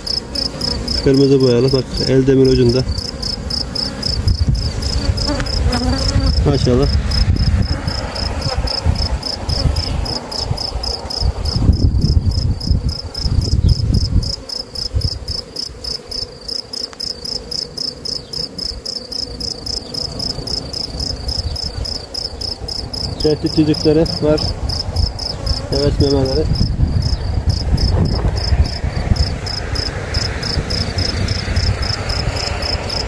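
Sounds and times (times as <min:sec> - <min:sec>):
cricket chirping: 0:00.0 - 0:33.0
honeybees buzzing: 0:00.0 - 0:33.0
low microphone rumble: 0:04.1 - 0:14.3, 0:25.9 - 0:33.0.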